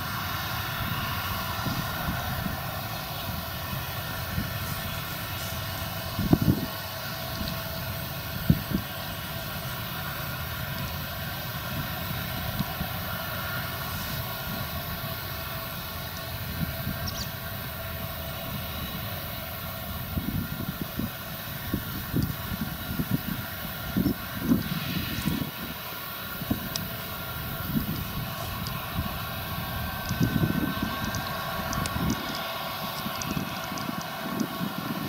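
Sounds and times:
combine harvester machinery drone: 0.0s - 35.0s
wind buffeting microphone: 0.5s - 9.9s, 17.9s - 35.0s.

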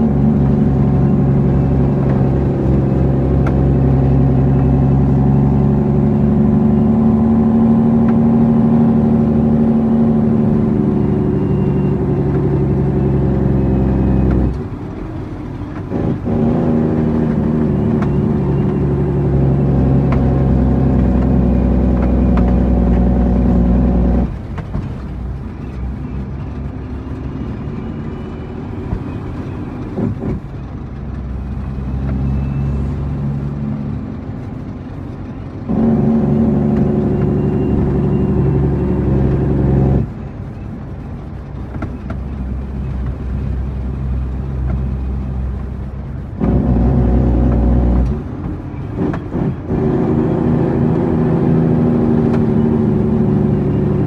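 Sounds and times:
truck diesel engine running: 0.0s - 54.0s.

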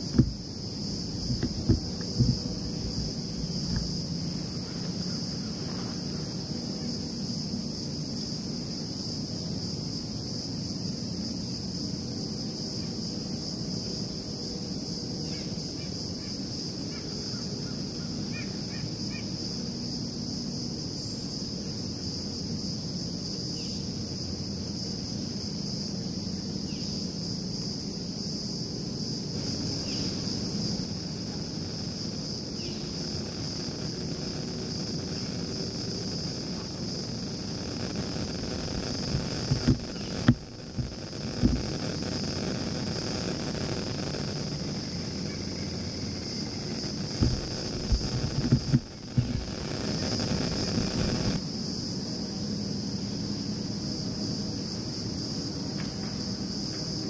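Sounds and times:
low steady hum: 0.0s - 14.8s
high-pitched insect chorus: 0.0s - 57.0s.

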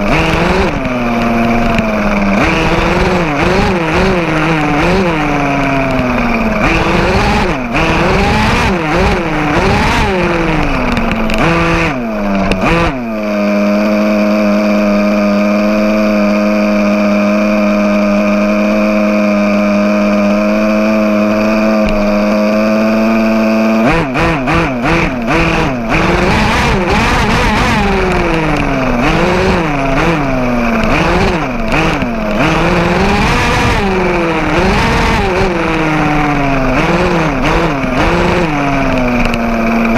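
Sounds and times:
small two-stroke engine revving: 0.0s - 39.9s.

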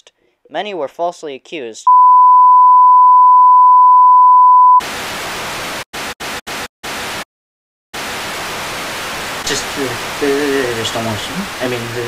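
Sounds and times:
alert tone beep: 1.9s - 4.8s
static hiss: 8.0s - 12.0s.

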